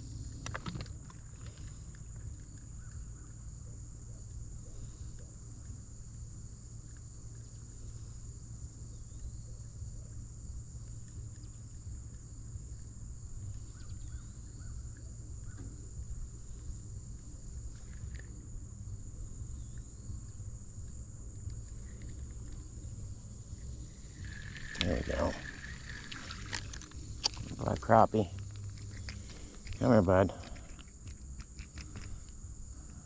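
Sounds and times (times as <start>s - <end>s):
insects chorus: 0.0s - 33.0s
low steady rumble: 0.0s - 33.0s
faint chirps: 12.8s - 30.9s.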